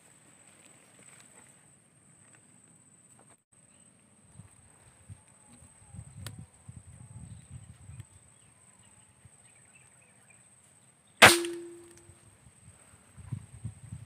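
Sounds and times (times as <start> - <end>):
air rifle shot: 11.2 - 12.0.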